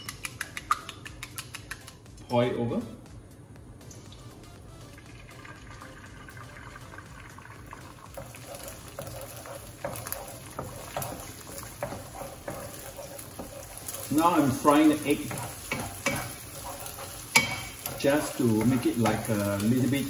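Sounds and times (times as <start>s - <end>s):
eggs sizzling in hot oil: 4.8s - 20.0s
wooden spatula scraping wok: 8.1s - 20.0s.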